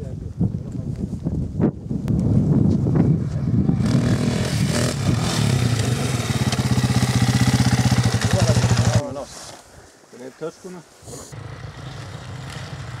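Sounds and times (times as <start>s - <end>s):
dirt bike engine passing by: 3.2s - 9.0s, 11.3s - 13.0s.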